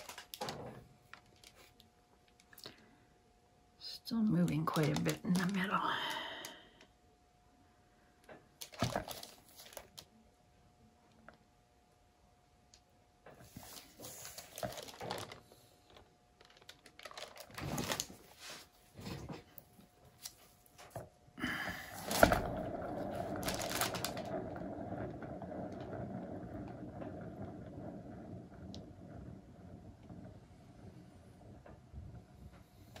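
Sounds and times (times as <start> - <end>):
rustling of gloves and plastic: 0.0 - 2.8, 3.9 - 6.6, 8.6 - 10.1, 13.4 - 21.0, 21.7 - 26.3.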